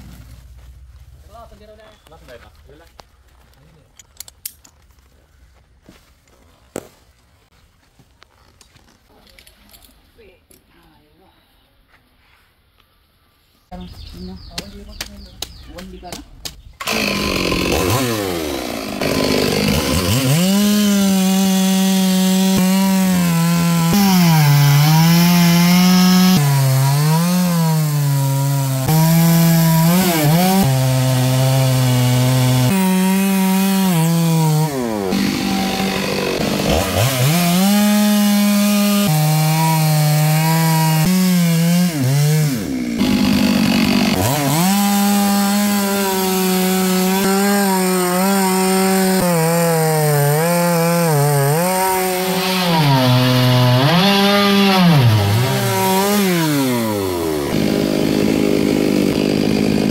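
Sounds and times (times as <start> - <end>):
chainsaw cutting wood: 16.8 - 59.9.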